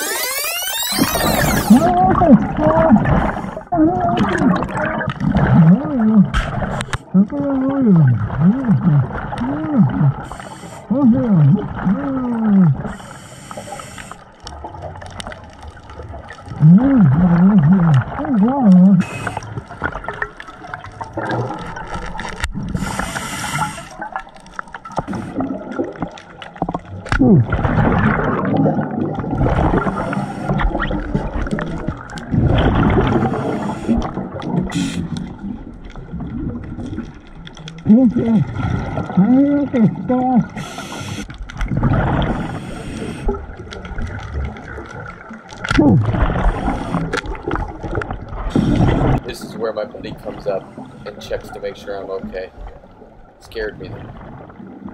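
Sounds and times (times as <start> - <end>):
rush of exhaled bubbles: 1.1 - 13.1, 13.7 - 53.1, 53.7 - 54.9
scuba regulator breathing: 10.2 - 11.0, 12.8 - 14.3, 19.0 - 19.6, 22.7 - 24.0, 29.8 - 30.7, 33.1 - 35.3, 40.5 - 41.3, 42.2 - 43.4, 46.4 - 47.2.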